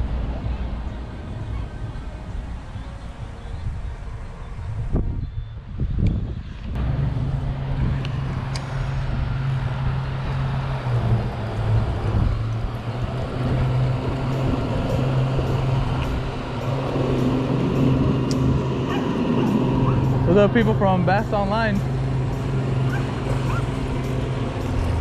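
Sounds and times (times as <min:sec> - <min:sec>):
outboard motor droning: 0:06.8 - 0:25.0.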